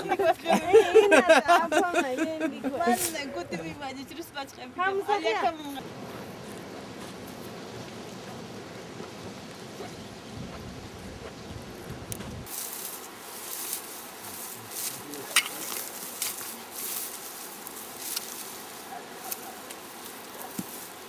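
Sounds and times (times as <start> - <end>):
dry grass rustling: 2.7 - 21.0
wind rumbling on microphone: 5.8 - 12.5.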